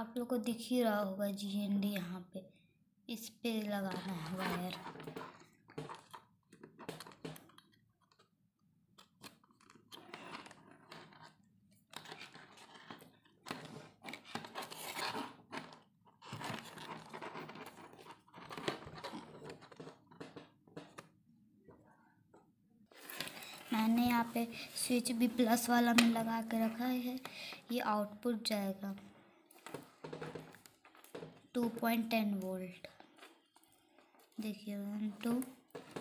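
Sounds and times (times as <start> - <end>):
crackling handling noise: 3.9 - 21.0, 22.9 - 27.7.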